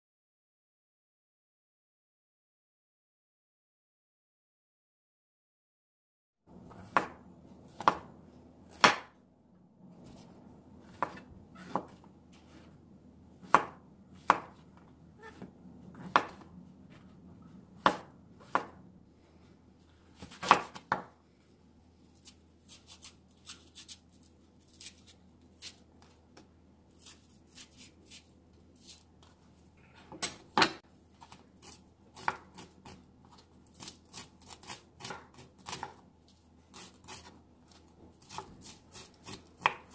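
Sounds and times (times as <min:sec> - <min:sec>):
knife chopping on wooden board: 0:06.7 - 0:08.1, 0:08.7 - 0:09.2, 0:10.8 - 0:12.7, 0:13.4 - 0:14.6, 0:15.3 - 0:16.5, 0:17.8 - 0:18.8, 0:20.2 - 0:21.1, 0:31.6 - 0:33.0, 0:33.8 - 0:36.0, 0:36.7 - 0:39.9.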